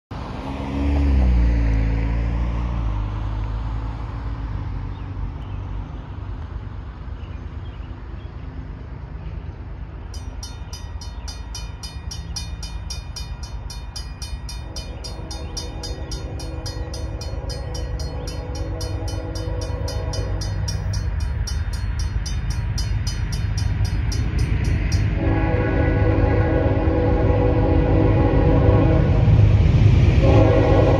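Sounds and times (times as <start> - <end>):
railroad crossing bell ringing: 10.0 - 29.4
train horn: 14.1 - 21.3, 24.9 - 30.9.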